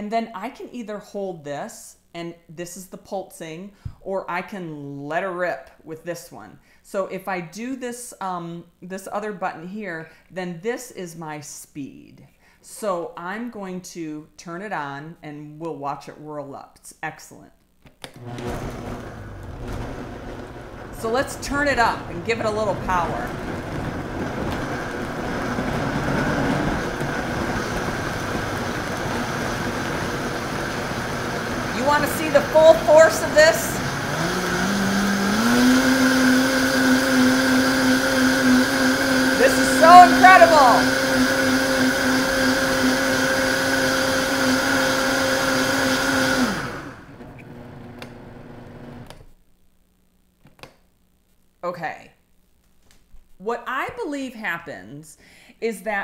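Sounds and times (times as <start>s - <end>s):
blender motor whirring: 18.2s - 49.2s.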